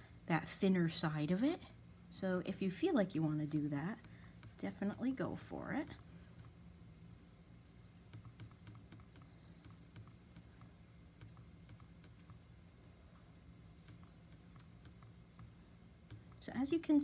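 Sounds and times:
low steady hum: 0.0s - 17.0s
paintbrush ticks and scratches: 3.1s - 5.1s, 7.9s - 12.5s, 13.1s - 17.0s.

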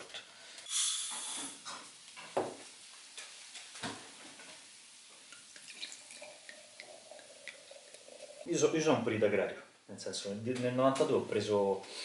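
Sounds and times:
wine pouring into a glass: 5.3s - 8.7s.

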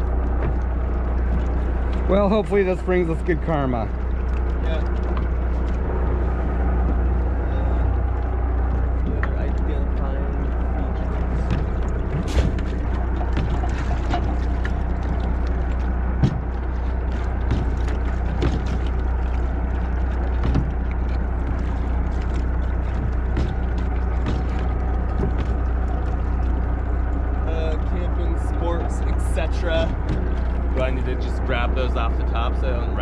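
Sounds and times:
boat engine humming: 0.0s - 33.0s
knocks and clicks: 11.0s - 27.2s, 29.0s - 30.9s.

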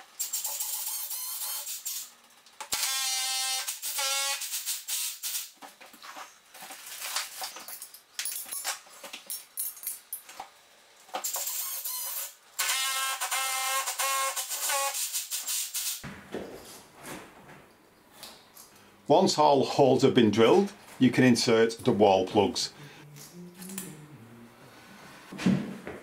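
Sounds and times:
high-pitched drill whine: 0.2s - 2.0s, 2.8s - 5.2s, 11.3s - 15.2s.

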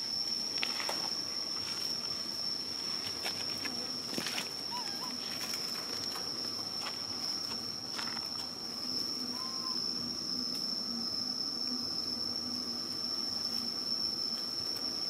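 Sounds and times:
insects droning: 0.0s - 15.0s
dry leaves crackling: 0.7s - 9.4s.

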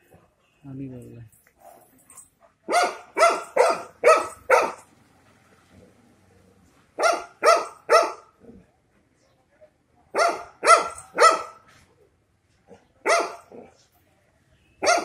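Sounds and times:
dog barking: 1.6s - 4.9s, 7.0s - 8.3s, 10.1s - 11.7s, 12.7s - 13.7s, 14.8s - 15.0s.

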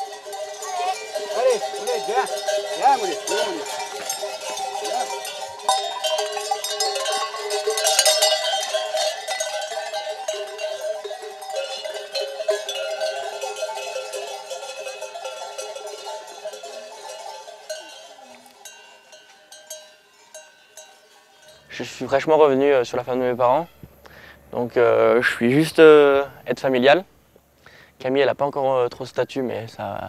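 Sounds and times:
sheep bells jangling: 0.0s - 23.8s.

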